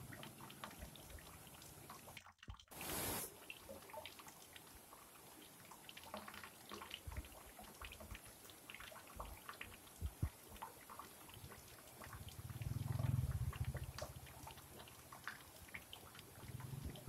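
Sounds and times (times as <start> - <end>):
shallow rocky stream trickling: 0.0 - 17.0
small splashes and drips: 0.0 - 17.0
soft low thumps: 10.0 - 10.4.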